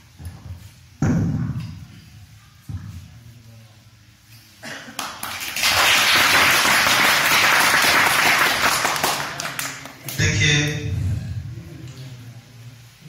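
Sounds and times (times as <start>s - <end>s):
audience applauding: 5.0s - 10.2s.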